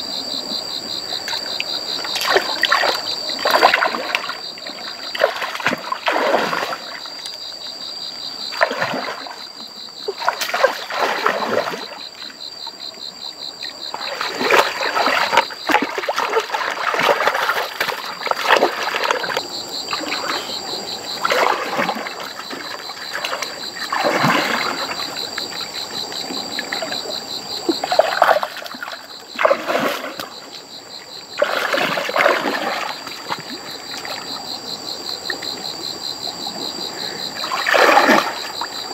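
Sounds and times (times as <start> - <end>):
high pulsing insect drone: 0.0 - 38.9
water splashing in bursts: 2.1 - 7.1, 13.9 - 20.4, 21.2 - 25.2, 27.8 - 30.4, 31.4 - 34.3, 37.4 - 38.8.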